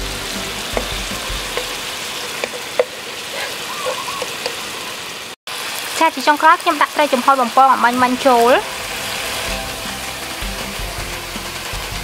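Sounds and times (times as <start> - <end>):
sauce sizzling in pan: 0.0 - 12.0.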